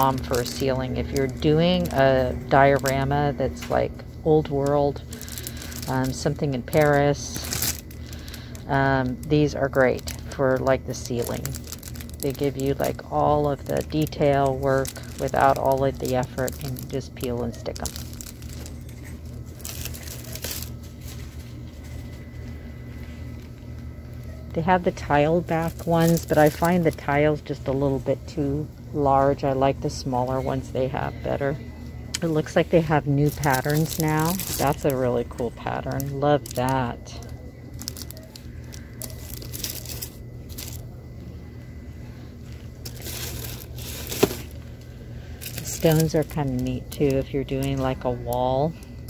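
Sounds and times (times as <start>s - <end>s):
packaging rustling and crinkling: 0.0s - 3.0s, 4.5s - 24.3s, 25.4s - 27.2s, 32.4s - 40.9s, 42.4s - 48.0s
store background hum: 0.0s - 49.0s
handling rustles: 42.4s - 44.8s.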